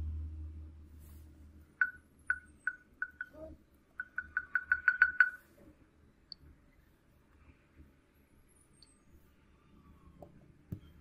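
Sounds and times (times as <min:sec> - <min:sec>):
phone volume key beeps: 0:01.8 - 0:03.4.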